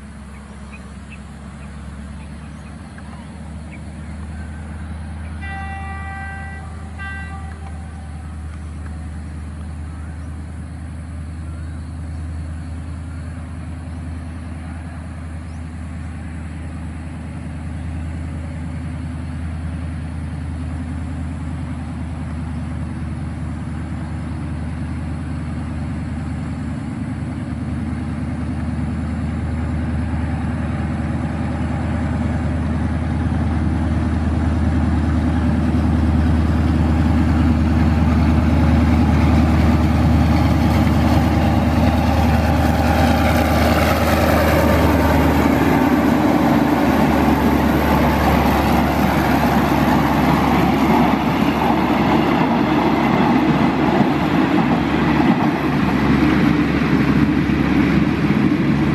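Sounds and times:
locomotive engine drone: 0:00.0 - 0:58.9
locomotive horn: 0:05.4 - 0:08.7.

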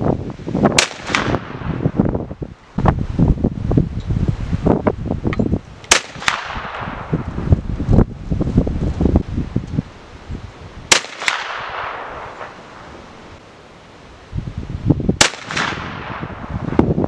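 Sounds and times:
wind buffeting microphone: 0:00.0 - 0:13.4, 0:14.2 - 0:17.0
rifle shots with echo: 0:00.8 - 0:01.8, 0:05.9 - 0:07.2, 0:10.9 - 0:12.8, 0:15.2 - 0:16.7.

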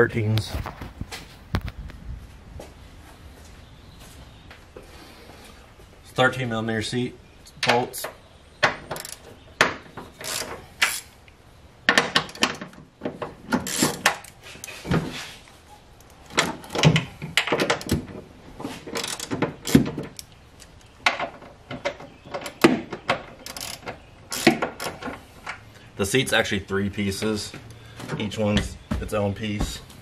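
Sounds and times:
hand tools clicking and knocking: 0:07.6 - 0:11.1, 0:11.9 - 0:15.0, 0:18.8 - 0:25.6.

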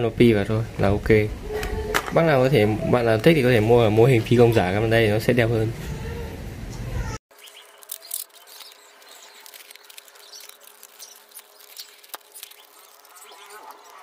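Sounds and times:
plastic film crinkling: 0:07.3 - 0:14.0
small clicks: 0:07.4 - 0:14.0.

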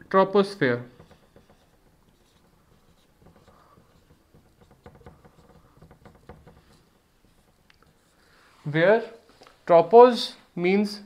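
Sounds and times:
marker writing on whiteboard: 0:00.9 - 0:08.5.

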